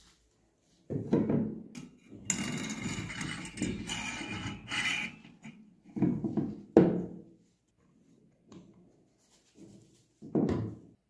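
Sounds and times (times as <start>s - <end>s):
spring coils scraping and rattling: 1.8s - 5.6s.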